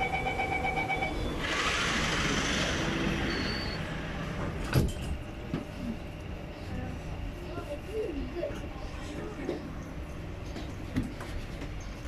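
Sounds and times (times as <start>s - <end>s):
steady warning tone: 0.0s - 1.5s.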